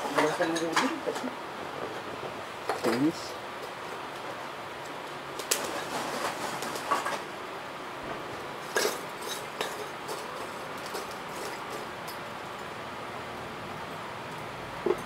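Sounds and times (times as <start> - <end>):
charcoal lumps clinking: 2.6 - 3.3, 8.6 - 12.7.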